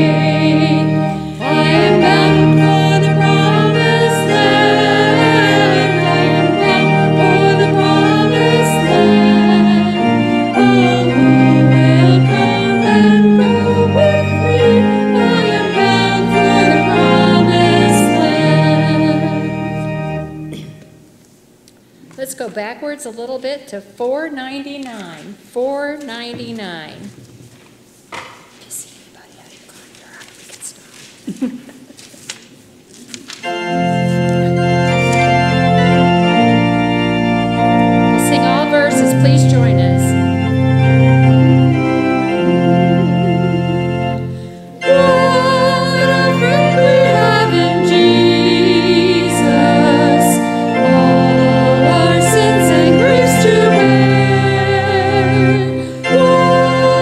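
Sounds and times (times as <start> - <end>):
women singing a hymn duet: 0.0 - 20.2, 38.1 - 57.0
organ chords: 0.0 - 21.9, 31.9 - 57.0.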